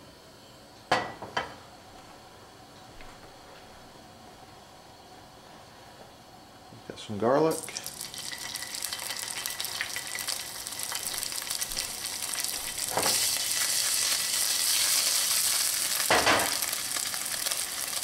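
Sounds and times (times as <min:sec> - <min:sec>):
garlic sizzling in oil: 0:07.5 - 0:18.0.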